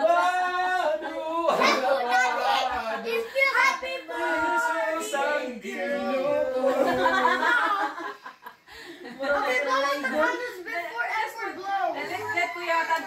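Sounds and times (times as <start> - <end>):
group singing unaccompanied: 4.0 - 7.8.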